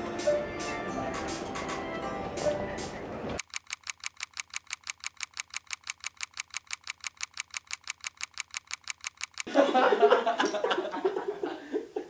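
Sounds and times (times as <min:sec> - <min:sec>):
film projector clicking: 0:03.4 - 0:09.5.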